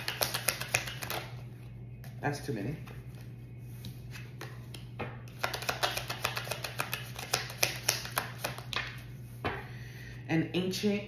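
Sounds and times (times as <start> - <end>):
cards shuffling clicks: 0.0 - 1.3, 4.1 - 9.0
steady low hum: 0.0 - 11.0.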